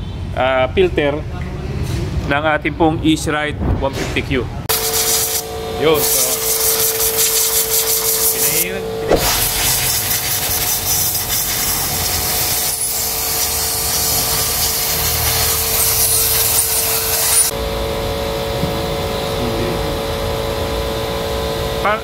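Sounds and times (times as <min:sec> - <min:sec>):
compressed air hissing from blow gun: 0:04.7 - 0:17.5
air compressor humming: 0:04.7 - 0:22.0.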